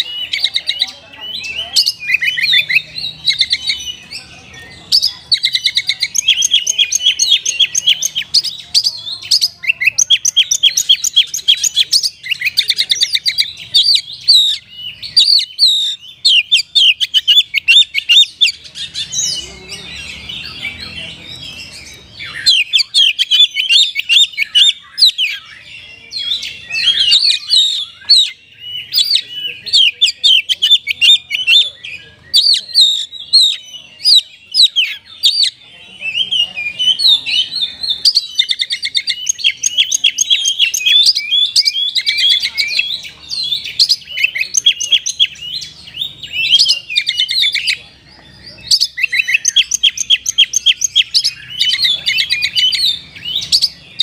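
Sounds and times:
bird singing fast trills: 0.0 - 54.0
noise under birdsong: 0.0 - 54.0.

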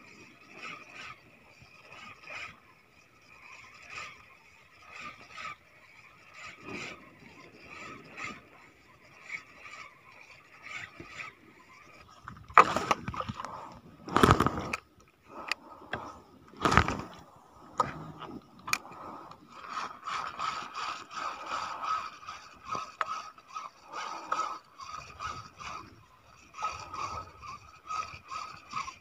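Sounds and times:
fishing reel ratcheting whir: 0.0 - 29.0
handling thumps and rustles: 12.1 - 14.9, 15.9 - 18.8.

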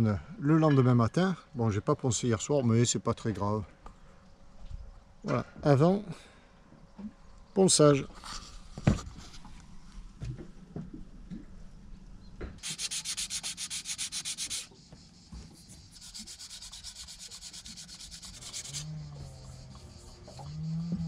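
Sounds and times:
sandpaper rubbing: 12.6 - 14.7, 15.5 - 20.4.

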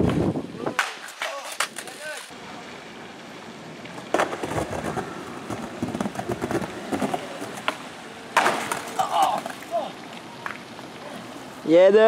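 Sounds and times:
skateboard crashing on ground: 0.0 - 2.3, 3.9 - 9.8
skateboard wheels rolling down ramp: 0.0 - 11.4.

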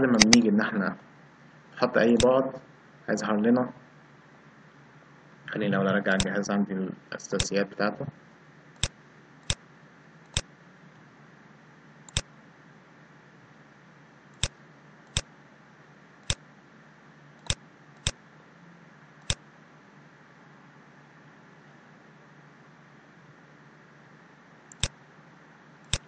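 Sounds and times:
faint steady hiss: 0.0 - 26.0
computer mouse clicks: 12.1 - 12.3, 16.2 - 16.4, 19.2 - 19.4, 24.7 - 25.0.

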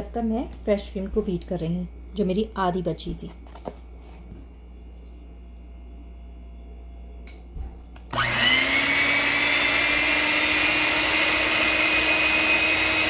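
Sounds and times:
electric hand mixer whining: 8.1 - 13.0.

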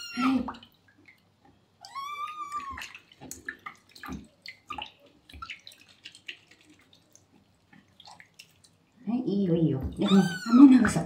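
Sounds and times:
water splashing and dripping: 0.0 - 11.0
kitten meowing: 1.8 - 2.9, 10.0 - 11.0.

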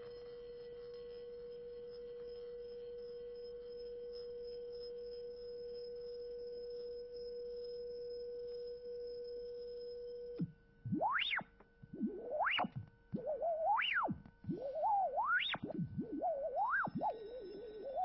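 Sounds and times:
sustained electronic tone: 10.8 - 18.0.

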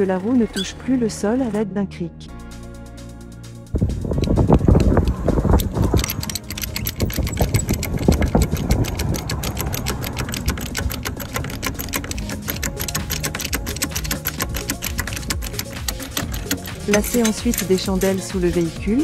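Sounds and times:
car jack clicking: 4.2 - 18.7.

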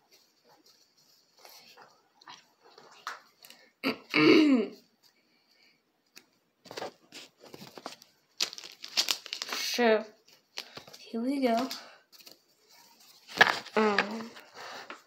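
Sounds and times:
foil pack crinkling open: 6.7 - 9.8, 13.2 - 14.4.

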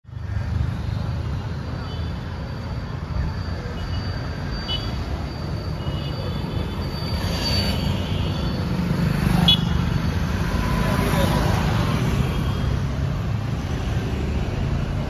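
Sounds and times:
motorcycles passing: 7.2 - 15.0.

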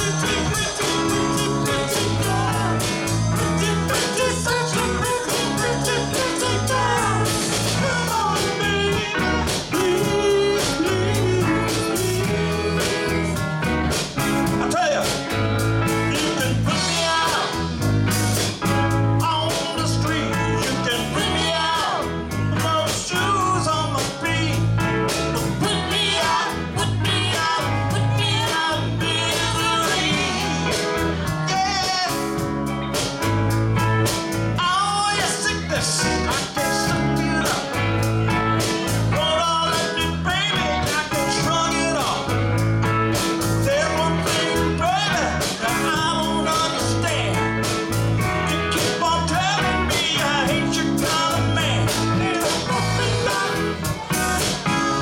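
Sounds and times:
live rock band playing: 0.0 - 55.0
woman singing: 25.6 - 30.9, 52.2 - 55.0.

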